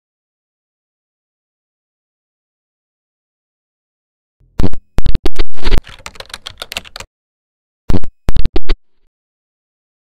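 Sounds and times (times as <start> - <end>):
digital glitch clicks and crackle: 4.6 - 6.2, 7.9 - 8.8.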